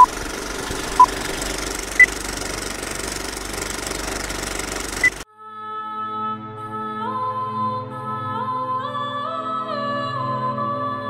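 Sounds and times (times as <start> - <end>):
film projector clattering: 0.0 - 5.2.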